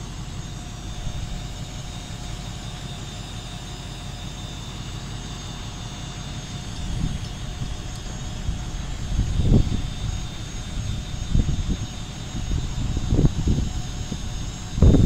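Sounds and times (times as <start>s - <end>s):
truck engine idling: 0.0s - 15.0s
wind buffeting microphone: 0.7s - 2.4s, 6.7s - 15.0s.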